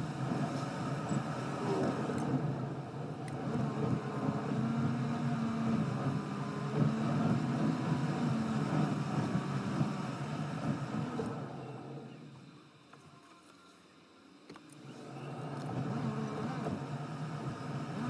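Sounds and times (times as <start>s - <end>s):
car road and engine rumble: 0.0s - 13.3s, 14.1s - 18.0s.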